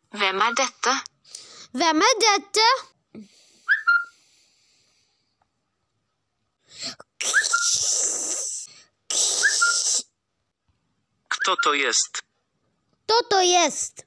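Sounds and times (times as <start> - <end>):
person's breathy bursts with squeak: 6.8 - 10.1.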